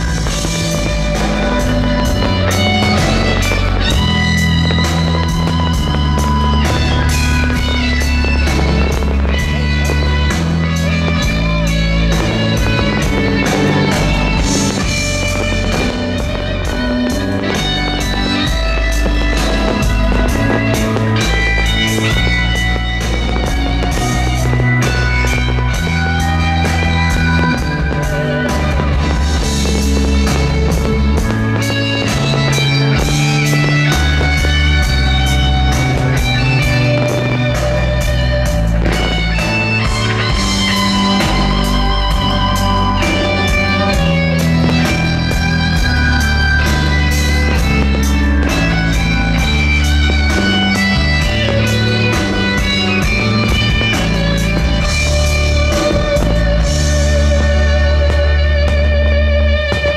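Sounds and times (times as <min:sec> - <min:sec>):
bass line: 0:00.0 - 0:59.9
guitar music: 0:00.0 - 0:59.9
steady beat: 0:00.0 - 0:59.9.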